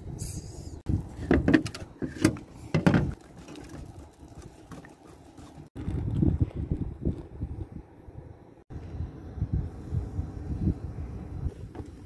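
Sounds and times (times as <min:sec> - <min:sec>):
wooden spoon stirring batter: 0:03.2 - 0:05.8.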